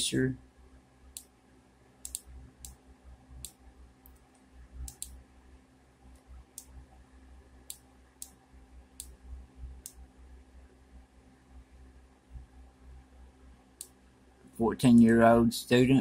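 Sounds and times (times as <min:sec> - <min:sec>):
faint hum: 0:00.0 - 0:16.0
computer mouse clicking: 0:02.0 - 0:02.8, 0:03.4 - 0:05.2, 0:09.0 - 0:09.2.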